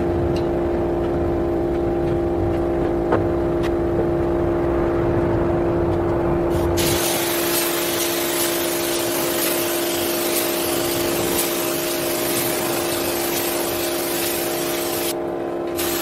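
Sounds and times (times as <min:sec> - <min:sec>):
spray gun hissing: 0:06.5 - 0:15.2, 0:15.8 - 0:16.0
air compressor humming: 0:06.5 - 0:16.0.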